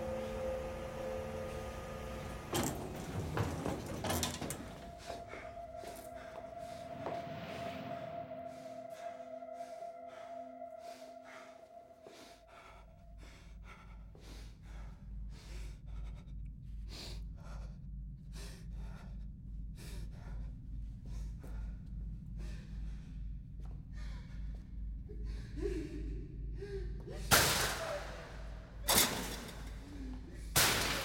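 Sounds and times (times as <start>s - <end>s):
low regular pulse: 4.6s - 27.2s.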